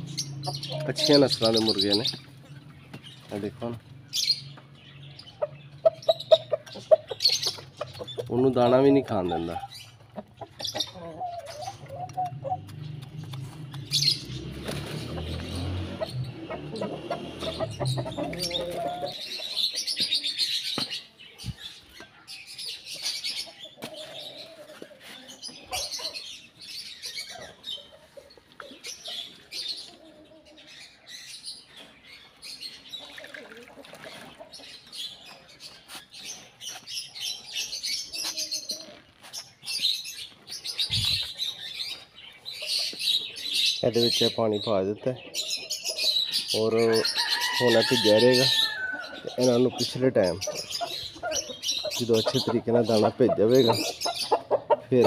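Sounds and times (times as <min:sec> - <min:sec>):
small birds chirping: 0:00.0 - 0:55.0.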